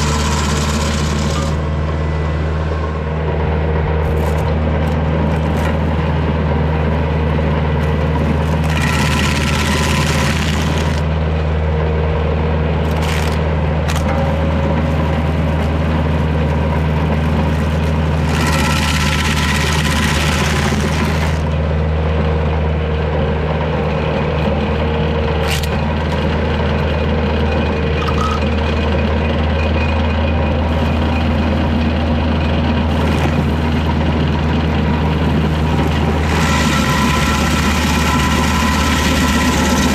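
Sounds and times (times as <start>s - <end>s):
stump grinder rasping: 0.0s - 3.0s, 3.8s - 11.2s, 12.8s - 21.7s, 23.8s - 26.8s, 30.6s - 39.9s
tractor diesel engine running: 0.0s - 39.9s.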